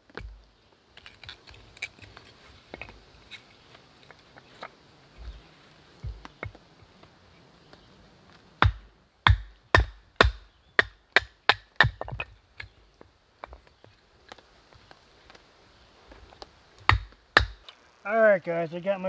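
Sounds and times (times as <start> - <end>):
axe chopping wood: 8.6 - 12.7, 16.8 - 17.6.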